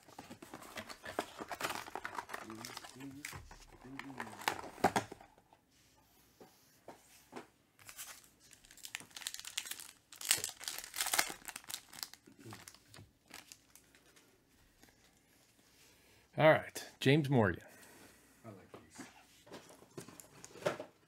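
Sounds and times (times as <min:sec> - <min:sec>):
plastic wrapper tearing and crinkling: 0:00.0 - 0:05.2, 0:07.9 - 0:14.0.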